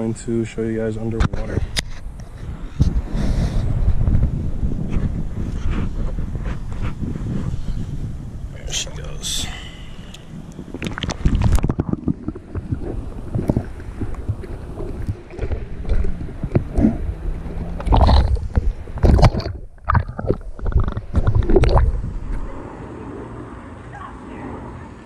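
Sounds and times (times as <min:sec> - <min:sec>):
water sloshing and gurgling: 0:00.4 - 0:23.8
water splashes: 0:09.8 - 0:23.9.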